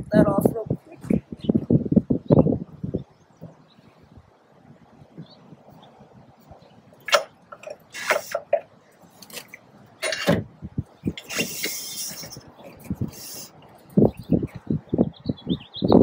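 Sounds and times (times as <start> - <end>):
rasping scrape: 7.2 - 8.6, 11.1 - 13.5.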